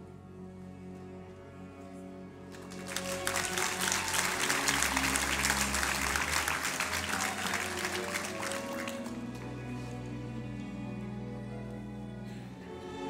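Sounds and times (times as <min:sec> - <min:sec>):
violin: 0:00.0 - 0:13.0
audience clapping: 0:02.5 - 0:09.9.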